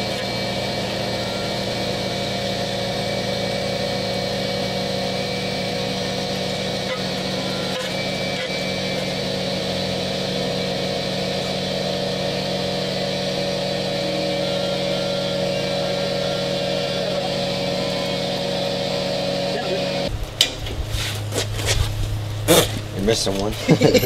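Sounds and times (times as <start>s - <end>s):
air compressor motor running: 0.0s - 24.0s.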